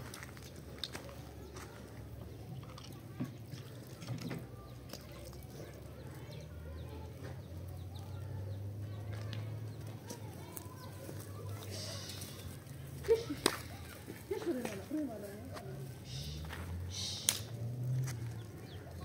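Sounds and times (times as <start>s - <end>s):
faint bird chirping: 15.9s - 17.4s.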